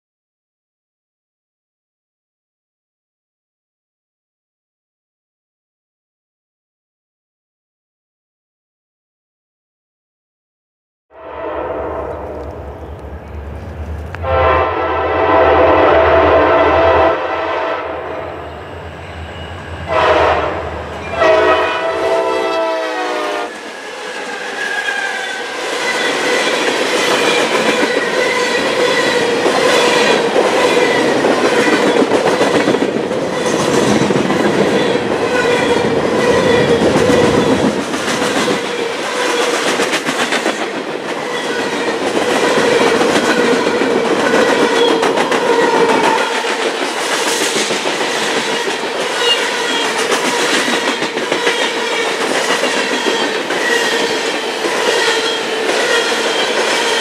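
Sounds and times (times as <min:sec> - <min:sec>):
train air horn: 0:11.1 - 0:12.5, 0:14.2 - 0:18.8, 0:19.5 - 0:26.2
high ring from train wheels: 0:18.2 - 0:22.1
train wheels clicking over rail joints: 0:36.5 - 0:57.0.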